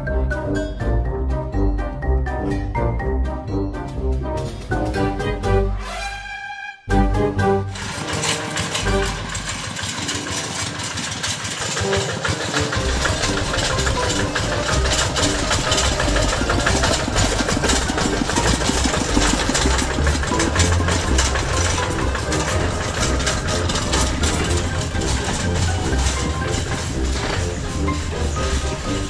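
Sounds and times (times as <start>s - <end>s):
diesel engine chugging: 6.9s - 29.0s.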